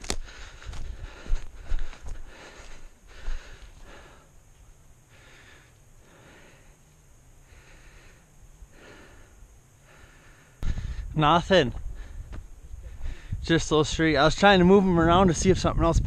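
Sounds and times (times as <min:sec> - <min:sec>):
person breathing: 0:00.0 - 0:11.2, 0:11.8 - 0:13.4.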